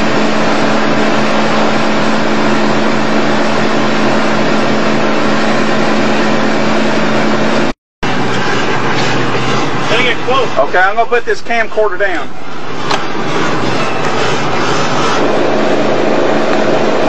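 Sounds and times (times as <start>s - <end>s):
motorboat engine running: 0.0s - 11.5s, 12.3s - 17.0s
rushing wind: 12.4s - 17.0s.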